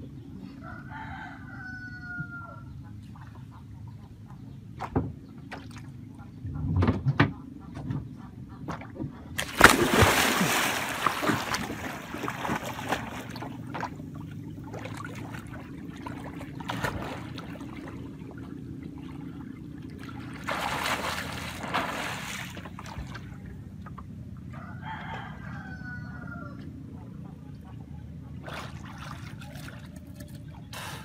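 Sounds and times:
water sloshing and trickling: 0:04.7 - 0:07.0, 0:08.6 - 0:25.4, 0:26.5 - 0:30.8
splash into river water: 0:09.4 - 0:13.5, 0:20.4 - 0:23.2.

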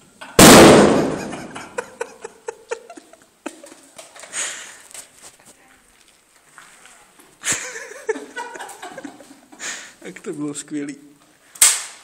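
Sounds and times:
loud bang echoing: 0:00.4 - 0:01.7.

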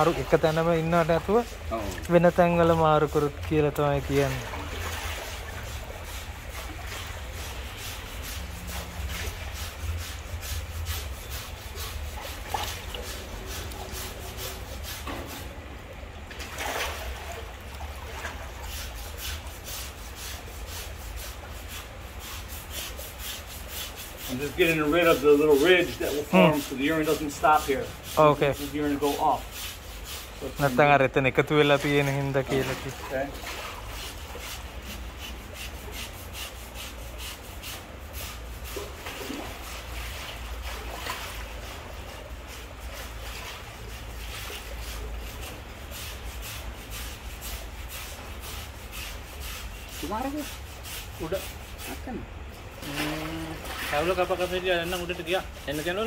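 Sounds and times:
hand tool scraping foot: 0:07.4 - 0:15.5, 0:18.7 - 0:30.8, 0:31.8 - 0:40.0.

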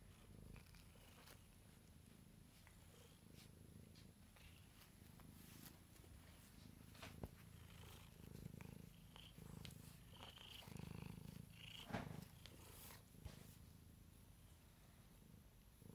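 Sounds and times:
cat purring: 0:00.0 - 0:15.9
brush scratching through fur: 0:04.6 - 0:06.8.

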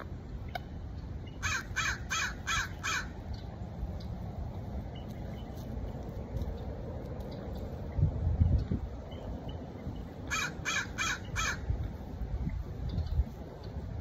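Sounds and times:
crow cawing: 0:01.4 - 0:03.1, 0:10.3 - 0:11.6
wind rumble on microphone: 0:02.4 - 0:14.0.

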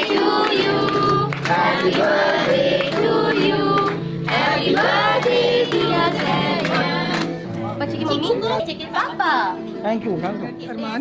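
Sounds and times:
hand-clapping in time: 0:00.0 - 0:07.6
group singing birthday song: 0:00.0 - 0:08.2.

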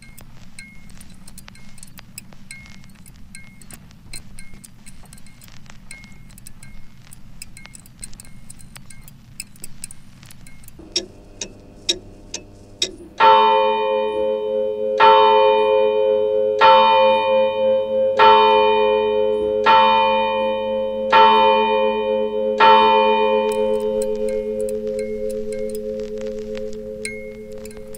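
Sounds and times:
tinkling chimes and ticks: 0:00.0 - 0:13.5, 0:22.6 - 0:27.9
sustained drone: 0:00.0 - 0:15.0, 0:22.2 - 0:27.9
bell-like tone struck: 0:10.8 - 0:27.9.

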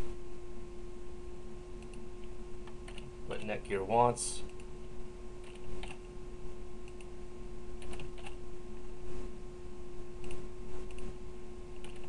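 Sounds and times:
low hum: 0:00.0 - 0:12.0
keyboard keystrokes clicking: 0:07.8 - 0:08.4, 0:11.8 - 0:12.0.

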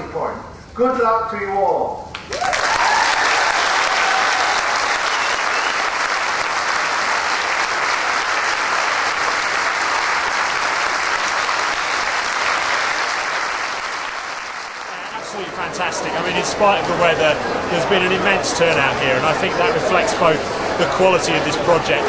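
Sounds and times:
crowd applauding: 0:02.1 - 0:18.4.

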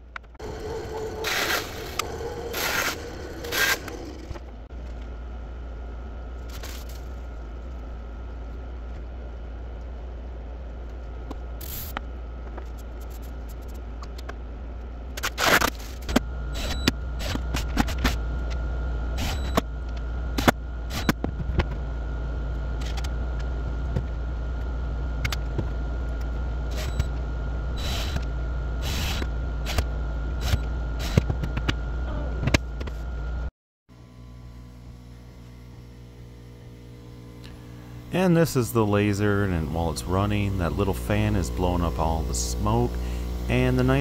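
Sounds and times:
steady low hum: 0:00.0 - 0:15.2, 0:16.0 - 0:44.0
faint steady whine: 0:16.2 - 0:44.0.

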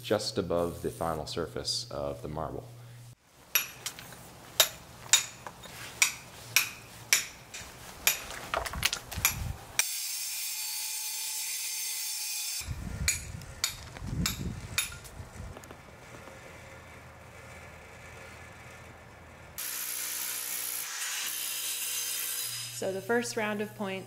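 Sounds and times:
hammer striking chisel into marble: 0:03.6 - 0:03.8
angle grinder cutting marble: 0:19.6 - 0:23.0.

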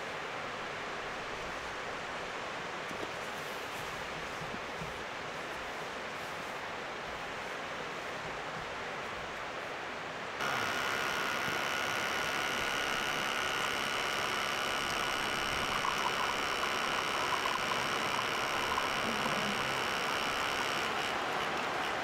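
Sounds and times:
espresso dribbling into cup: 0:10.4 - 0:22.0
espresso machine pump whine: 0:10.4 - 0:22.0.

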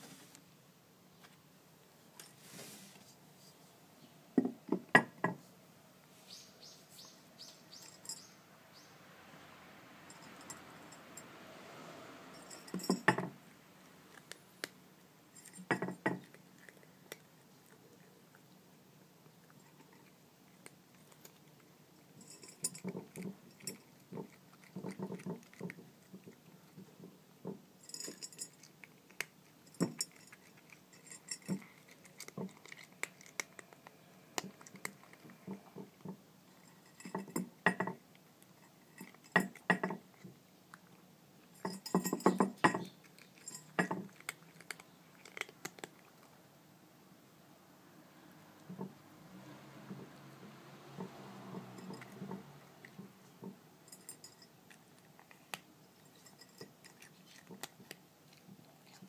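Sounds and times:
kitten crunching dry kibble: 0:13.8 - 0:46.5, 0:49.4 - 0:59.0
kibble clinking against dish: 0:22.2 - 0:38.0, 0:41.5 - 0:45.9, 0:51.0 - 0:53.2.

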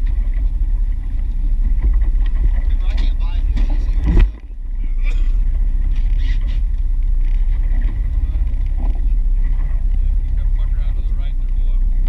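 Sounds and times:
boat engine low rumble: 0:00.0 - 0:12.0
faint voices: 0:02.6 - 0:06.7, 0:07.8 - 0:12.0.

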